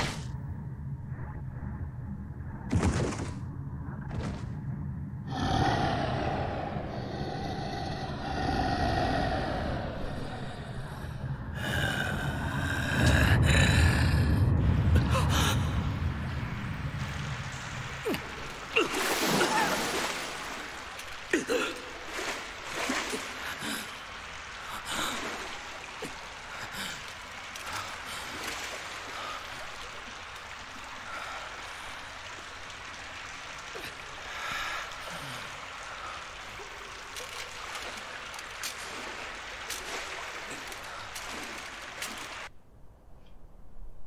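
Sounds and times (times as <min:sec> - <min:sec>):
water running through tunnel: 0:05.3 - 0:42.5
short splashes: 0:17.9 - 0:24.5.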